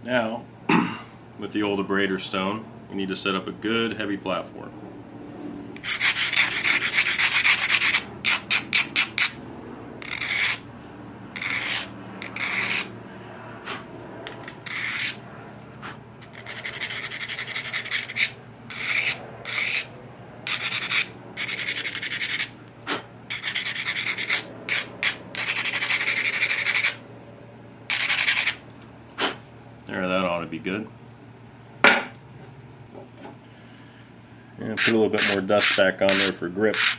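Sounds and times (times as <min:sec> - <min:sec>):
stone scraping stone edge: 0:05.8 - 0:09.4, 0:10.0 - 0:10.6, 0:11.4 - 0:12.9, 0:14.2 - 0:15.2, 0:16.2 - 0:22.6, 0:23.3 - 0:27.0, 0:27.9 - 0:28.6, 0:34.8 - 0:36.9.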